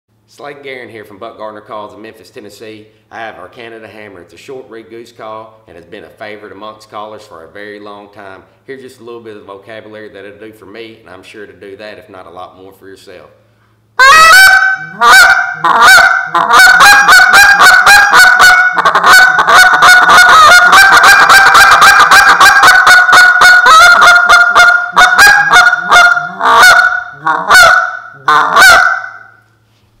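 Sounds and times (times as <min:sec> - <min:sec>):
goose call honks and clucks: 0:14.0 - 0:29.4.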